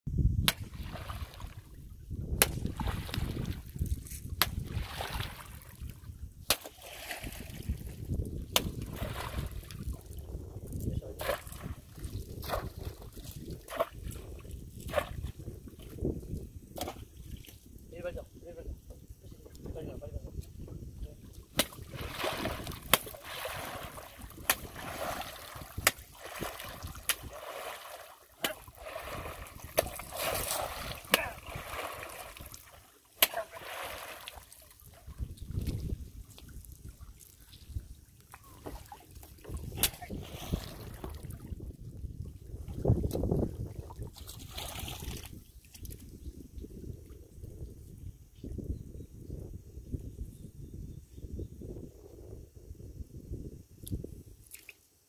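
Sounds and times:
muddy water splashing: 0.4s - 17.8s, 21.3s - 46.1s.

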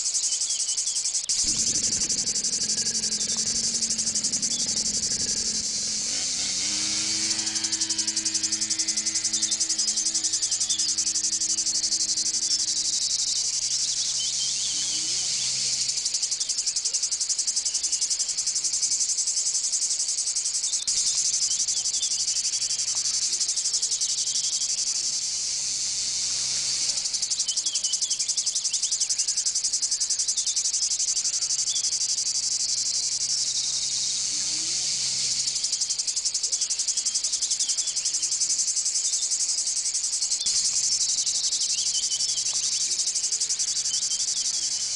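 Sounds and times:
pulsing insect chorus: 0.0s - 44.9s
bird chirps: 0.2s - 17.0s, 32.8s - 44.9s
faint low drone: 1.3s - 16.3s.

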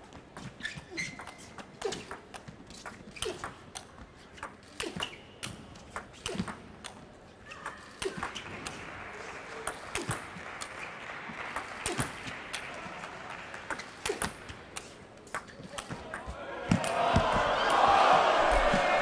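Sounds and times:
shoes squeaking on floor: 0.1s - 3.6s
crowd noise: 7.4s - 19.0s.

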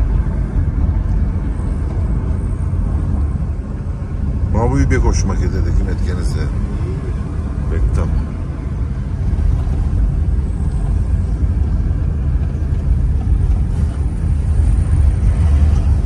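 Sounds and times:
car driving on asphalt: 0.0s - 16.0s.

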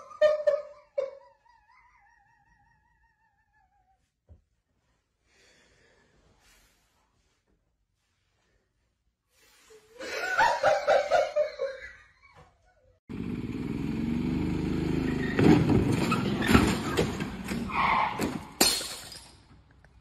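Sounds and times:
golf cart motor: 13.1s - 16.4s.

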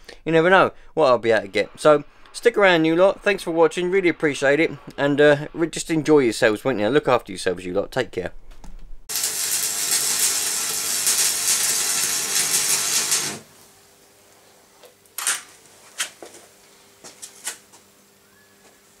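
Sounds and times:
arc welding crackling hiss: 0.2s - 6.0s, 9.1s - 14.0s.

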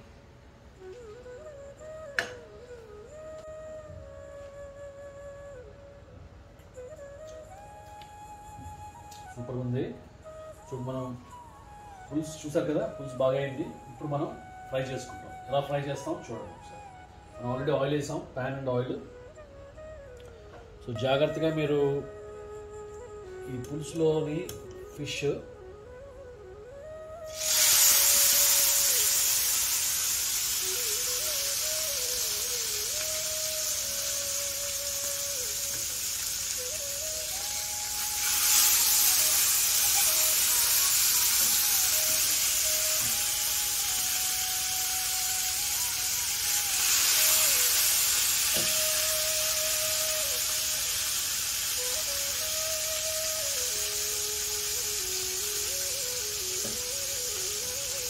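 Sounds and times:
background music: 0.8s - 29.6s, 30.5s - 58.0s
fish sizzling in hot oil: 27.3s - 58.0s.

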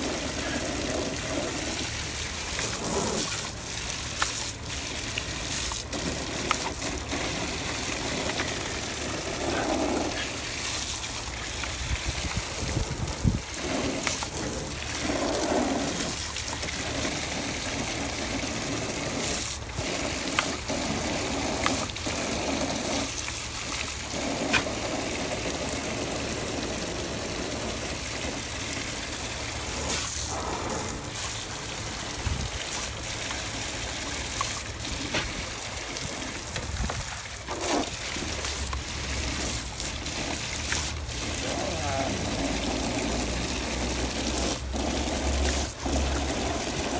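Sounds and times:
dog lapping at water: 0.0s - 46.9s
hose water splashing on ground: 0.0s - 46.9s.

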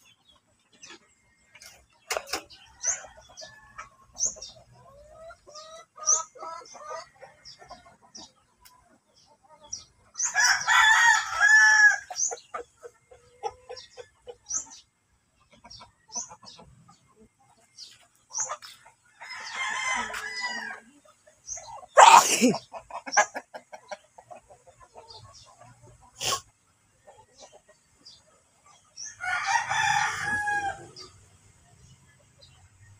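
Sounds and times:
roosters crowing: 10.2s - 12.4s, 19.1s - 20.9s, 21.9s - 22.6s, 29.0s - 31.2s.

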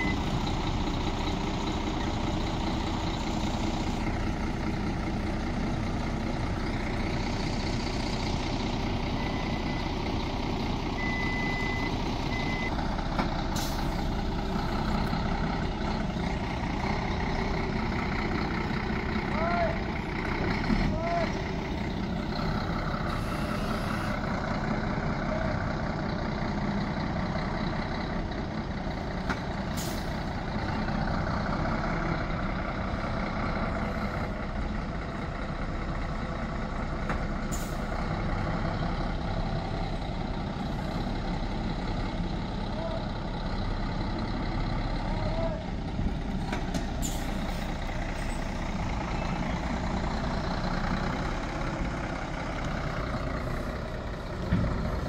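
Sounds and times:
diesel truck engine running: 0.0s - 55.0s
air brake hisses: 47.0s - 47.8s.

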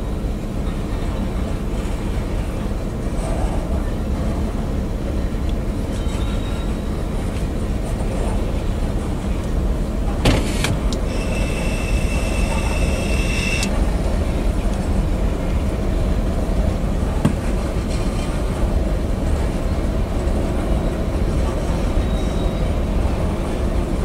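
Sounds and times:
train wheels rumbling on rail: 0.0s - 24.0s
metallic wheel squeal: 11.1s - 13.7s, 22.0s - 22.7s.

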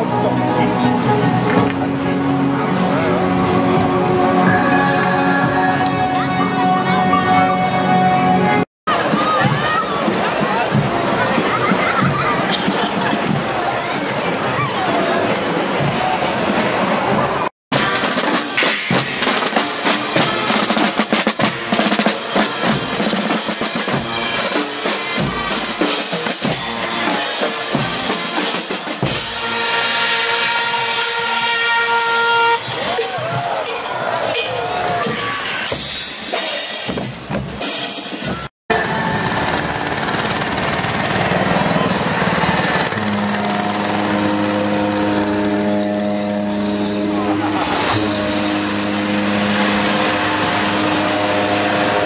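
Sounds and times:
marching drums: 8.9s - 14.4s, 15.7s - 31.6s, 34.9s - 52.0s
brass held notes: 18.6s - 33.0s, 41.7s - 52.0s
small engine rattling: 38.7s - 46.2s.

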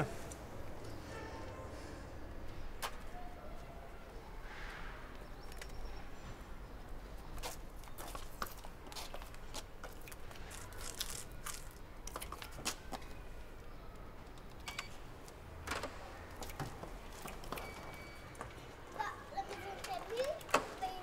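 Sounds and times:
footsteps on pavement: 6.3s - 13.2s.

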